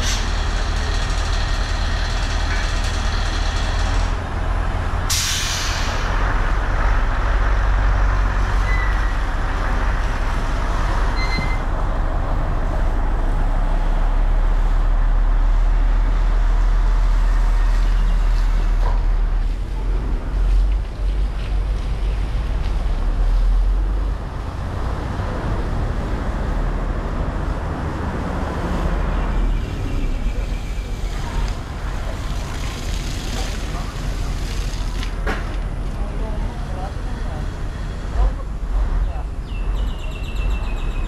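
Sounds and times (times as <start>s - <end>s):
heavy engine running: 0.0s - 41.0s
short sharp hiss: 5.1s - 6.1s.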